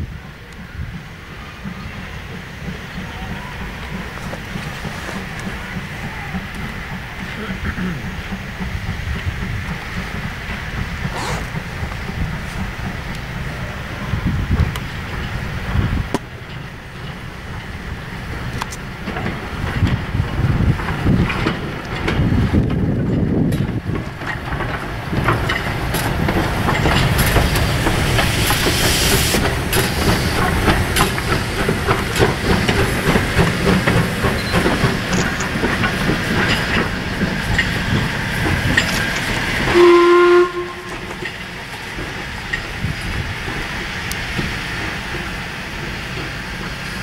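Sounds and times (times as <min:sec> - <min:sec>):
steady hiss of steam: 0:00.0 - 0:47.0
metallic clanks of locomotive: 0:00.1 - 0:47.0
steam whistle blast: 0:39.7 - 0:41.1.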